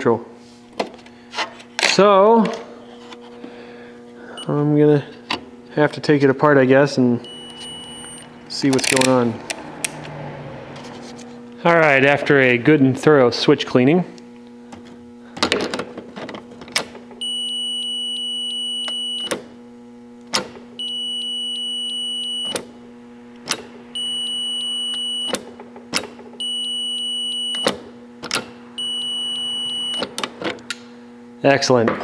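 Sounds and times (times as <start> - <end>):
steady low hum: 0.0 - 32.0
multimeter continuity beeps: 4.4 - 4.6, 7.2 - 8.2, 17.2 - 19.4, 20.8 - 22.6, 24.0 - 25.4, 26.4 - 27.7, 28.8 - 30.1
test probe clicks: 7.3 - 9.2.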